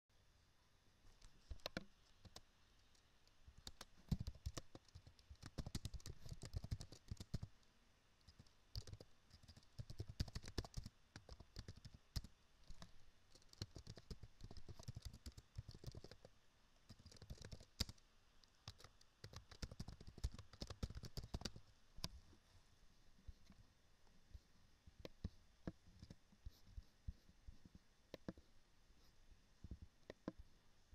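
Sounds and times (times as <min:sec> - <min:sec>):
computer keyboard typing: 0:03.6 - 0:07.5, 0:08.3 - 0:16.3, 0:16.9 - 0:18.0, 0:18.6 - 0:21.6.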